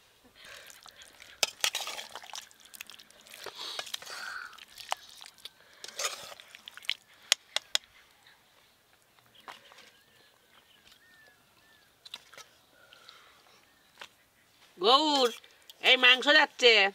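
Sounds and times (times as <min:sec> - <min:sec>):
wet squelching of gravy: 0:00.4 - 0:08.1.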